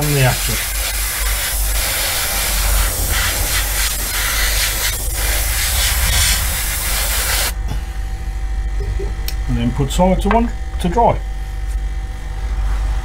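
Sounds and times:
airbrush spraying hiss: 0:00.0 - 0:07.6.

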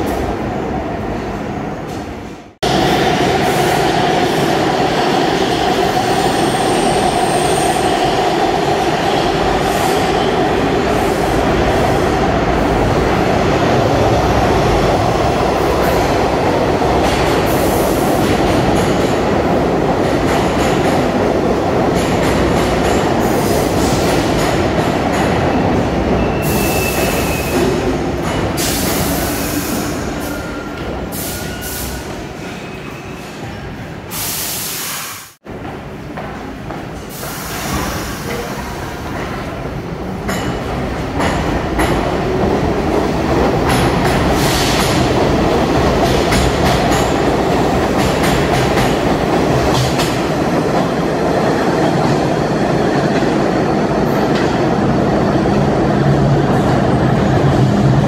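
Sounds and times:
subway train passing: 0:00.0 - 0:58.0
subway train wheels squealing: 0:02.7 - 0:21.3, 0:21.9 - 0:35.4, 0:36.8 - 0:58.0
brake air hiss: 0:34.1 - 0:35.4, 0:37.1 - 0:39.0.

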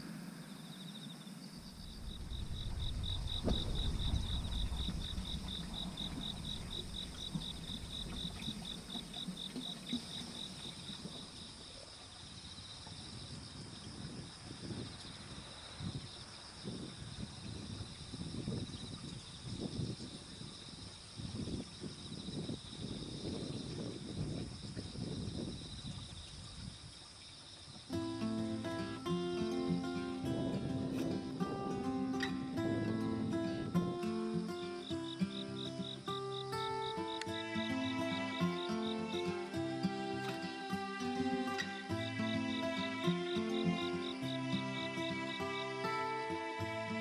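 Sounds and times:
pulsed insect chirp: 0:00.0 - 0:47.0
steady high insect trill: 0:00.0 - 0:47.0
low rumble: 0:01.7 - 0:09.2.

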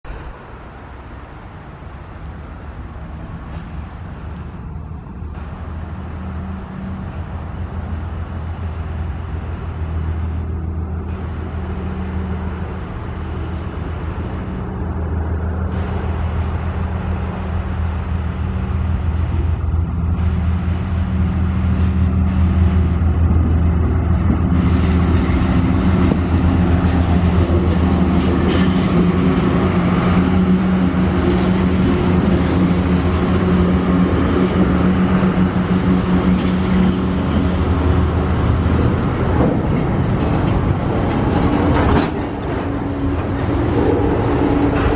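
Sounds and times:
diesel locomotive engines droning: 0:00.0 - 0:44.9
wagons rolling past: 0:21.5 - 0:44.9.

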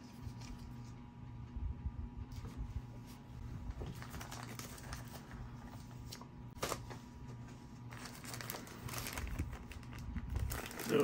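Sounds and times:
plastic packaging crinkling: 0:03.8 - 0:05.5, 0:07.9 - 0:11.0.

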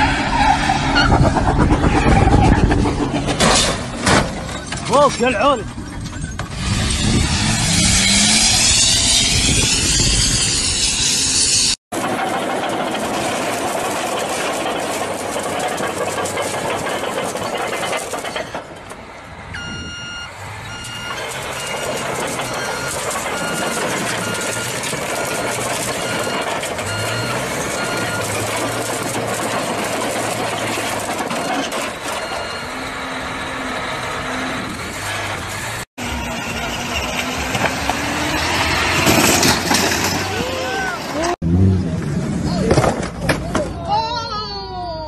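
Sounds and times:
road and engine noise: 0:00.0 - 0:45.0
electronic warning beeps: 0:19.6 - 0:28.4, 0:32.0 - 0:33.0.

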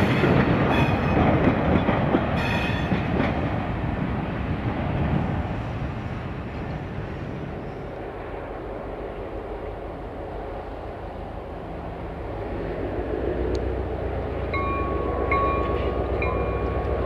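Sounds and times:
diesel locomotive engine rumble: 0:00.0 - 0:17.0
locomotive bell ringing: 0:14.4 - 0:17.0.

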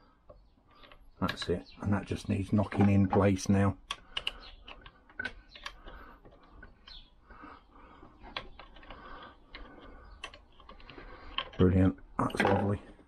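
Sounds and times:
metallic clicks and taps: 0:03.8 - 0:07.0.

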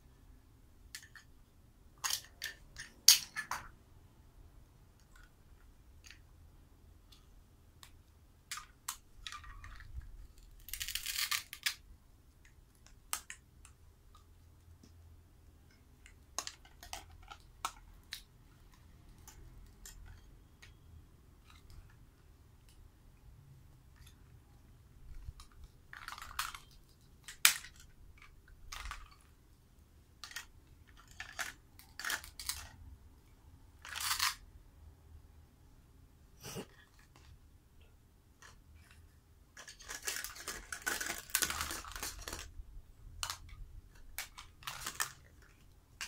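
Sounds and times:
plastic toy pieces clacking: 0:00.9 - 0:01.3, 0:02.0 - 0:03.7, 0:07.8 - 0:11.9, 0:12.8 - 0:13.8, 0:16.0 - 0:20.8, 0:25.1 - 0:29.4, 0:30.2 - 0:32.8, 0:33.8 - 0:34.4, 0:39.6 - 0:42.6, 0:43.2 - 0:46.0.

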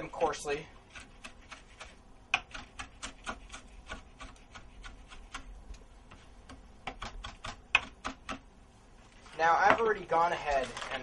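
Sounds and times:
knife chopping herbs: 0:00.0 - 0:08.5.

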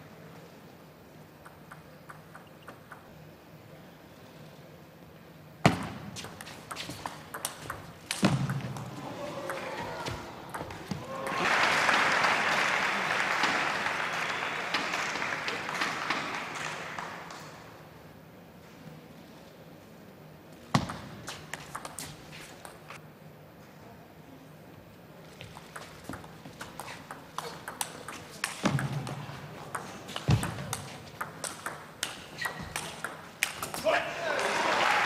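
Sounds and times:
table tennis ball clicking: 0:01.4 - 0:03.1, 0:06.2 - 0:08.9, 0:25.7 - 0:33.8
audience applause: 0:11.0 - 0:17.7, 0:34.2 - 0:35.0.

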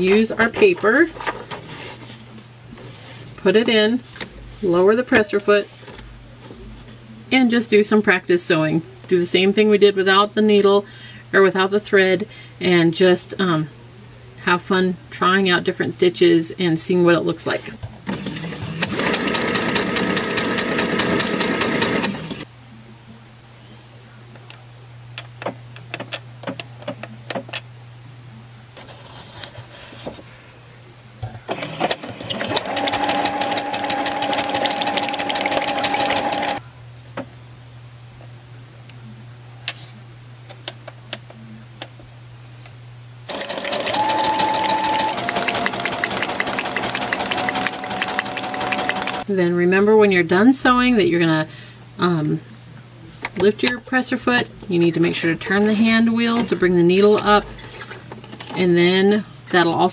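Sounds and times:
sewing machine stitching: 0:18.1 - 0:22.4, 0:31.5 - 0:36.6, 0:43.3 - 0:49.3
low steady hum: 0:32.1 - 0:59.9.

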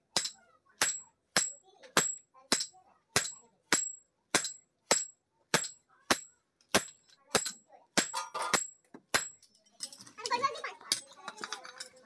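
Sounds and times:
hammer ringing on hot iron: 0:00.2 - 0:09.4.

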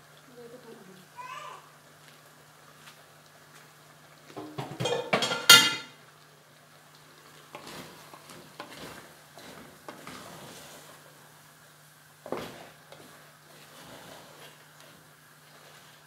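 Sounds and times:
wooden spoon stirring in pot: 0:02.0 - 0:16.0
metal cookware clattering: 0:04.4 - 0:06.0.

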